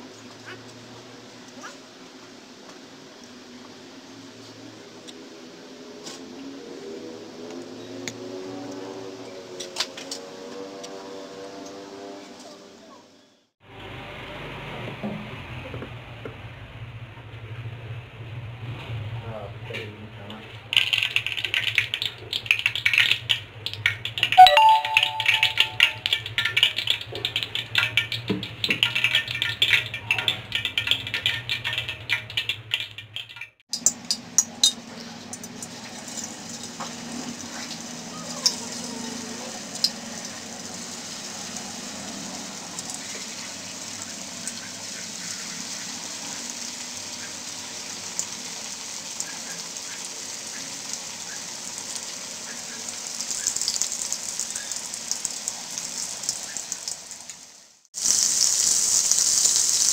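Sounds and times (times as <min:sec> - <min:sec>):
fish deep-frying in hot oil: 0:20.5 - 0:59.9
background music: 0:24.4 - 0:26.1.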